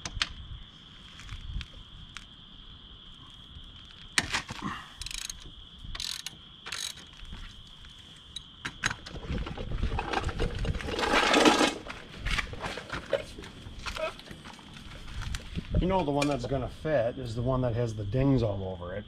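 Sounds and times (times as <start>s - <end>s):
metal tools clicking: 5.0s - 7.1s
socket ratchet clicking: 5.0s - 7.1s
metal bar rustle and clatter: 9.5s - 11.9s.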